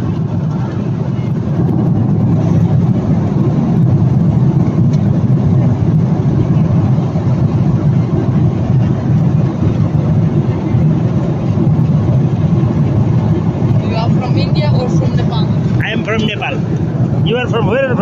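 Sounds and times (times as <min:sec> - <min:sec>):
airplane cabin drone: 0:00.0 - 0:18.0.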